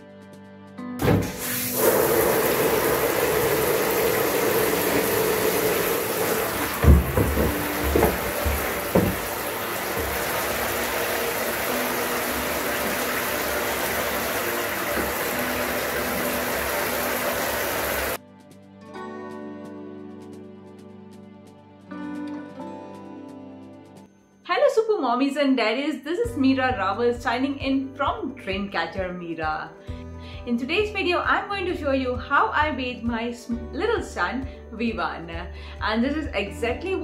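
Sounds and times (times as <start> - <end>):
tap water pouring into tub: 1.0 - 18.2
dull knocks on plastic: 6.7 - 9.4.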